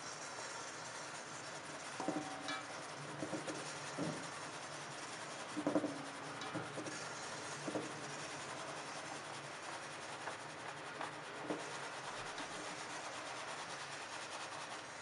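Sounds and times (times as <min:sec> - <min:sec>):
flour rubbing on sieve mesh: 0:00.0 - 0:15.0
sieve knocking on metal bowl: 0:02.0 - 0:04.2.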